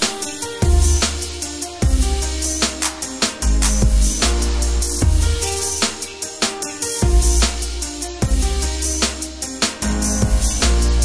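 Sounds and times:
drum beat: 0.0s - 10.9s
deep sustained bass: 0.6s - 1.1s, 3.5s - 5.5s, 9.9s - 11.0s.

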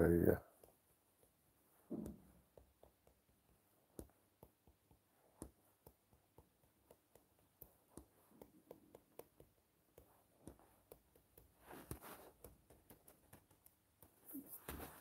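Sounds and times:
soft rustle: 7.2s - 15.0s.

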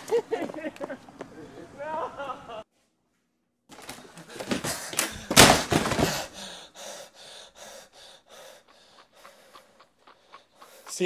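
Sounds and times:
man panting heavily: 4.1s - 11.0s
door slamming shut: 5.0s - 6.3s.

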